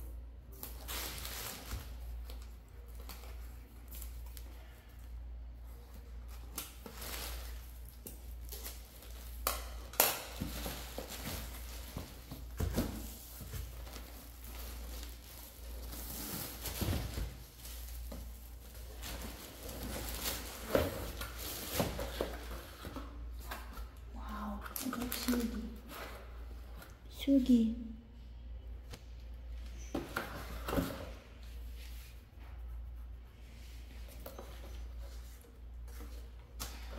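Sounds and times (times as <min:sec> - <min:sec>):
plastic shrink wrap crinkling: 0:13.2 - 0:22.4.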